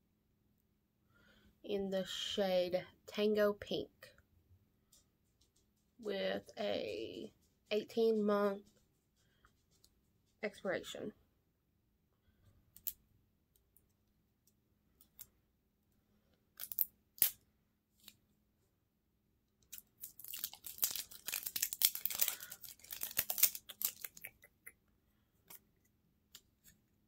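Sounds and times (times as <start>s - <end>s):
packaging tearing and crinkling: 16.6s - 17.4s, 19.6s - 24.3s.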